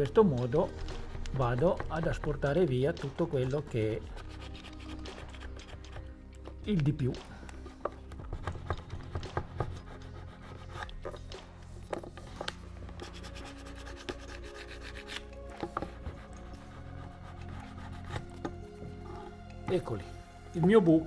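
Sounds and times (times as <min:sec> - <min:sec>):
plastic spatula scraping wood: 0:00.4 - 0:06.6, 0:07.6 - 0:20.1.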